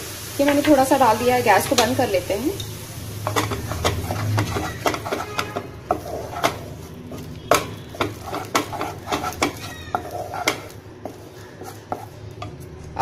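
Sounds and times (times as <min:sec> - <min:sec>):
wooden spatula scraping a pan: 0:03.2 - 0:13.0
spatula knocking against pan: 0:03.3 - 0:06.6, 0:07.5 - 0:12.6.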